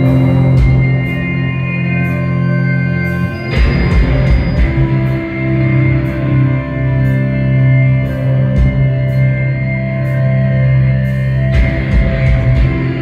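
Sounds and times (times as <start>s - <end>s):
drums: 0.0s - 13.0s
ringing electric guitars: 0.0s - 13.0s.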